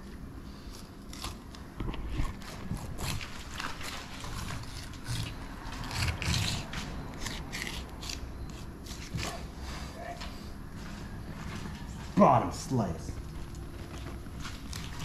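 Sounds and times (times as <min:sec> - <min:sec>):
knife sawing through fish: 0:02.3 - 0:09.9.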